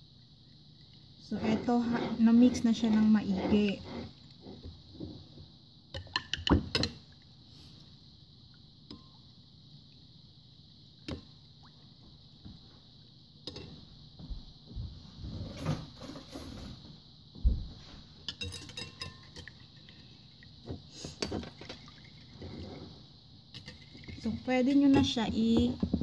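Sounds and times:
metal spoon clinking in ceramic bowl: 18.3s - 19.5s.

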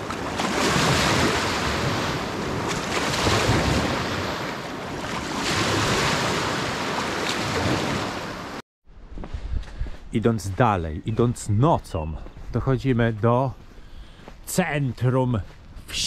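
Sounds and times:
wind on microphone: 0.0s - 8.2s, 9.0s - 10.5s
sea waves washing in: 0.0s - 8.6s.

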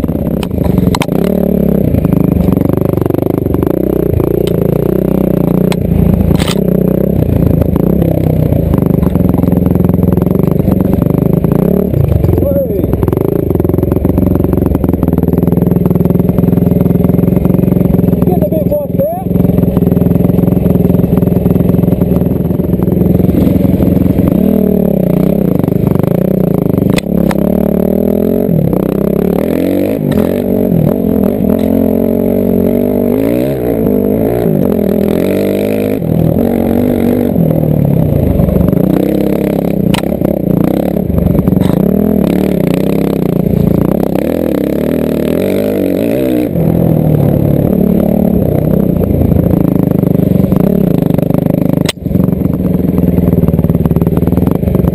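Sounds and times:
dirt bike engine revving: 0.0s - 54.9s.

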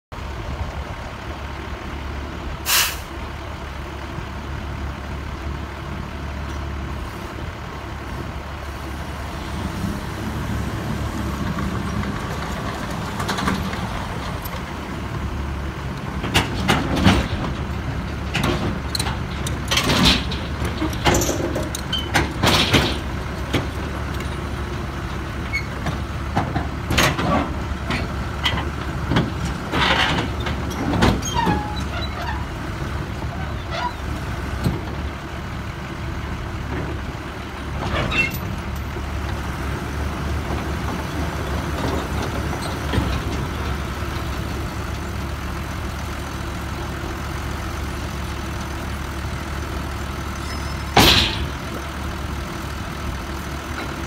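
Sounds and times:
dozer diesel engine running: 0.1s - 54.0s
short sharp burst of noise: 2.6s - 3.1s
steel tracks clanking: 50.4s - 51.8s.

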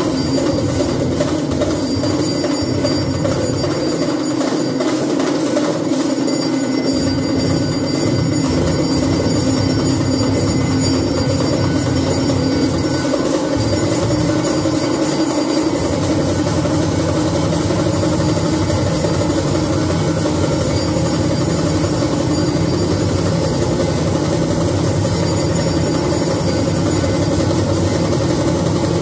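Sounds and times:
drums beating: 0.0s - 29.0s
temple bells ringing: 0.0s - 29.0s.

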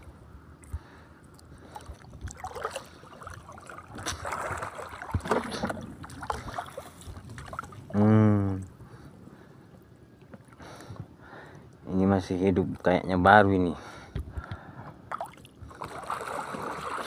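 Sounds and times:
water splashing and dripping: 1.7s - 7.8s, 15.1s - 17.0s.

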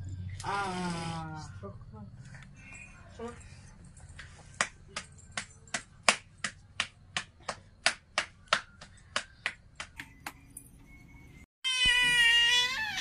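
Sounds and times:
hands slapping dough: 4.6s - 10.1s.

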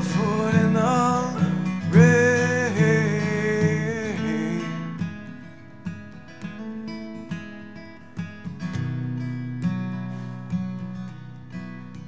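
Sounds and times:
man singing: 0.0s - 5.3s
acoustic guitar picking and strumming: 0.0s - 12.0s.

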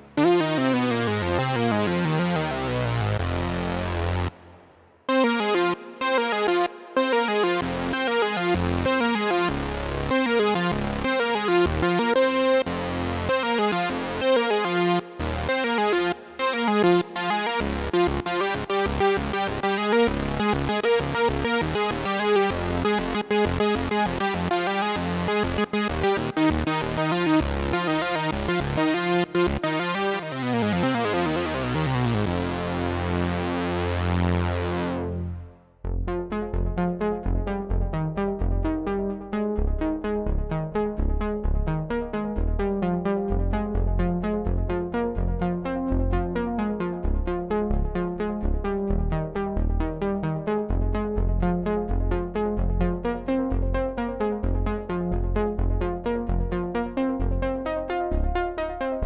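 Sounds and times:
synthesizer notes: 0.0s - 38.2s
low synth bass notes: 0.0s - 59.0s.

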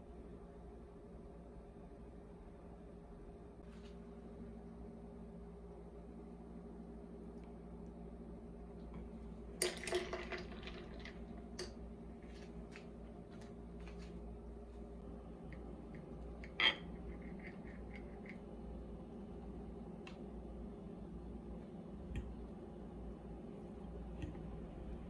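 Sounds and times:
faint steady hum: 0.0s - 25.0s
cutlery clinking on ceramic plate: 16.4s - 16.9s.

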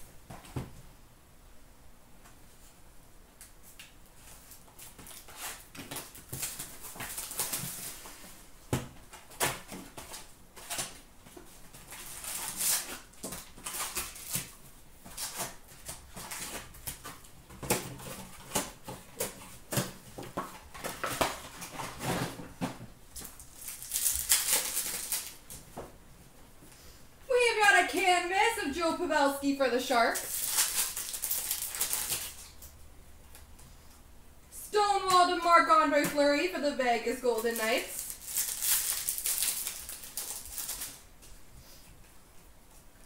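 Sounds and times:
foil wrappers crinkling: 4.2s - 8.4s, 9.1s - 22.4s, 23.1s - 25.6s, 29.9s - 32.7s, 37.3s - 41.1s.

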